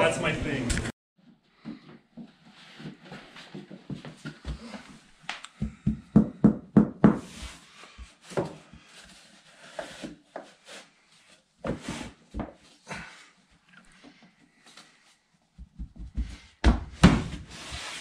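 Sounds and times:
flooring plank thumping: 15.6 - 17.6.

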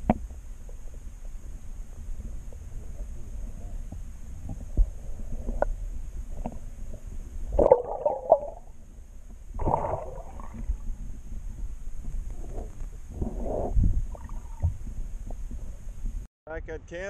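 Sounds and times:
underwater clicks and knocks: 0.0 - 0.4
muffled underwater rumble: 0.0 - 16.3
bursts of water noise: 7.5 - 8.7, 9.5 - 11.1.

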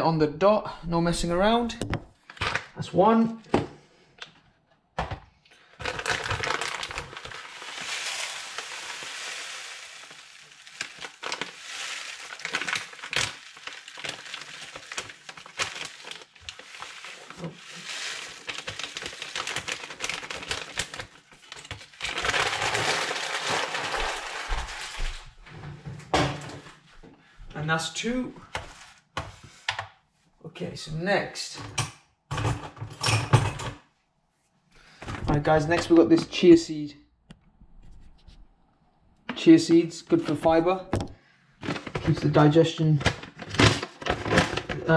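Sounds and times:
oats pouring into plastic tub: 5.8 - 25.3.

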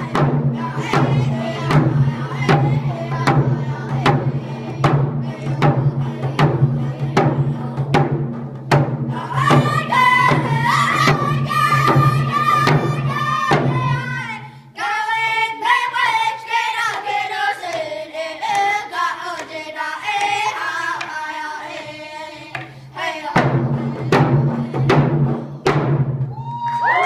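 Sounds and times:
children singing: 0.0 - 8.1, 9.1 - 25.8
frame drums beaten with sticks: 0.0 - 14.4, 17.7 - 26.7.

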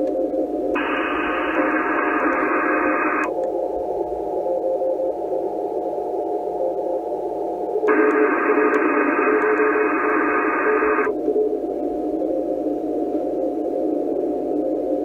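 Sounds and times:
faint morse code signal: 0.1 - 3.3, 7.9 - 11.1
radio band hiss: 0.8 - 3.3, 7.9 - 11.8.

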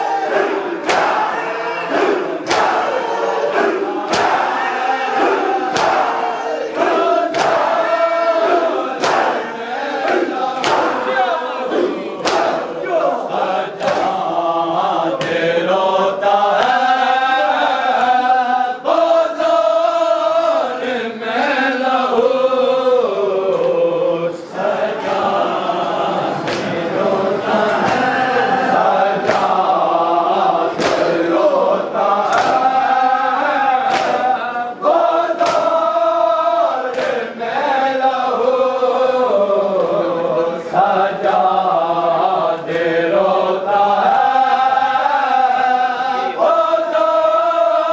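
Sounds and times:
group chanting a lament: 0.0 - 47.9
chest-beating slaps: 0.8 - 1.3, 1.9 - 4.6, 5.2 - 7.8, 8.5 - 9.4, 10.0 - 11.1, 12.2 - 12.8, 13.8 - 14.3, 15.2 - 15.5, 16.6 - 16.8, 26.4 - 26.9, 27.6 - 28.2, 29.2 - 29.8, 30.7 - 31.3, 32.2 - 32.8, 33.8 - 34.4, 35.4 - 35.8, 36.9 - 37.2.

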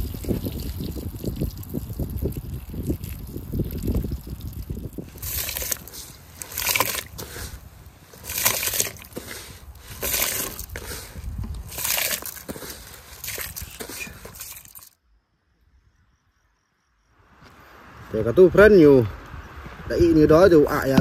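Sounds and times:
short water splashes: 0.0 - 15.0
water sloshing and trickling: 0.0 - 15.0.

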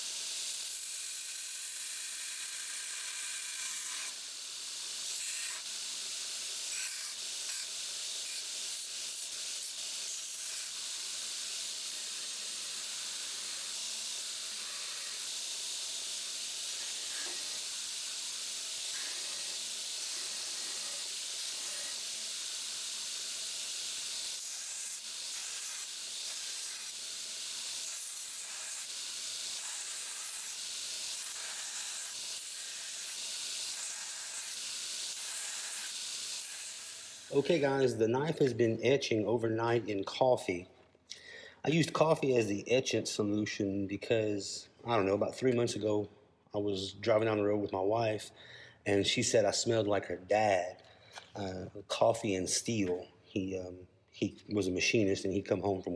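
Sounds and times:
belt grinder grinding steel: 0.0 - 37.7.

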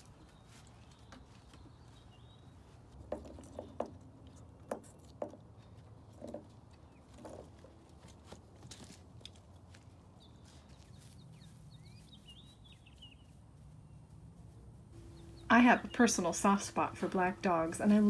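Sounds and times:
paws tapping on wooden boards: 3.0 - 9.9
low steady hum: 5.4 - 18.0.

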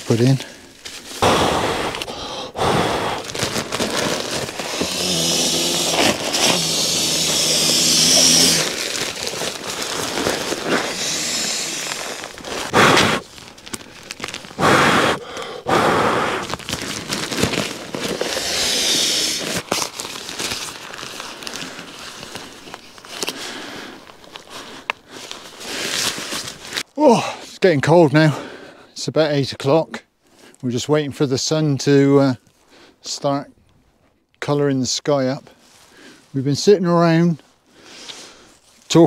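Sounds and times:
nylon sleeping mat rustling: 0.7 - 15.2, 16.0 - 24.5, 25.2 - 26.9.

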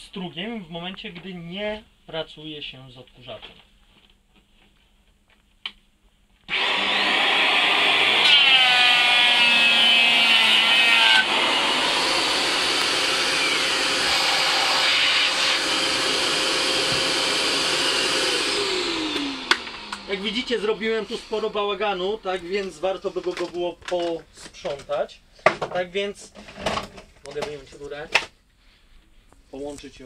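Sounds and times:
electric hand planer shaving wood: 6.5 - 22.7.

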